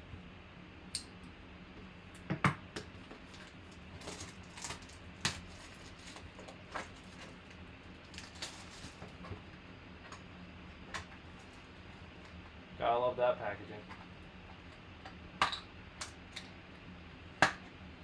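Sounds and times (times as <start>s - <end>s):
plastic wrap crinkling: 3.2s - 9.3s.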